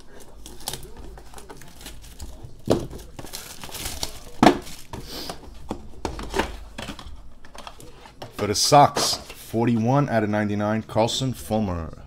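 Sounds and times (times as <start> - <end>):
plastic shrink wrap crinkling: 0.0 - 8.0.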